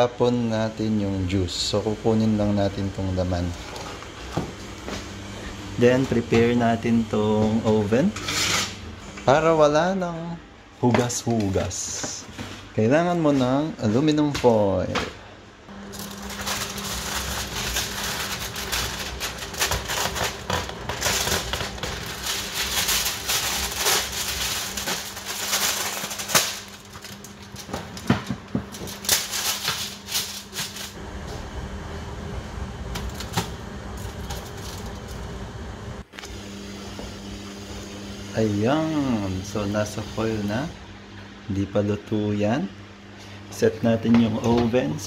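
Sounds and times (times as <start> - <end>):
steady low hum: 0.0 - 45.0
kitchen foil crinkling and tearing: 15.8 - 28.1, 28.7 - 31.0, 34.0 - 35.2.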